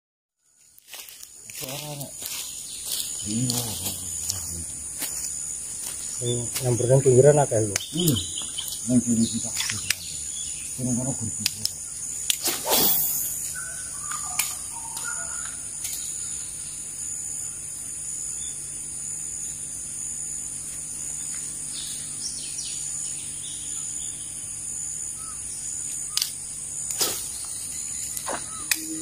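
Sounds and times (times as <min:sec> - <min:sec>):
bird chirps: 0:00.4 - 0:19.7, 0:20.3 - 0:29.0
high-pitched insect drone: 0:00.6 - 0:29.0
sharp clicks: 0:09.4 - 0:10.1, 0:11.4 - 0:12.5, 0:25.9 - 0:28.9.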